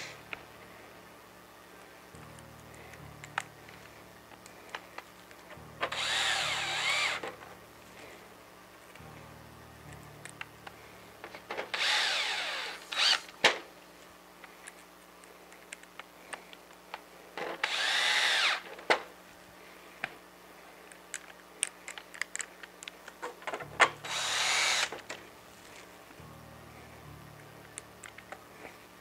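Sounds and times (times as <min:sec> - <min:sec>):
cordless drill driving screws: 0:05.8 - 0:07.3, 0:11.7 - 0:13.4, 0:17.6 - 0:18.7, 0:24.0 - 0:25.0
handling clicks: 0:20.9 - 0:23.2.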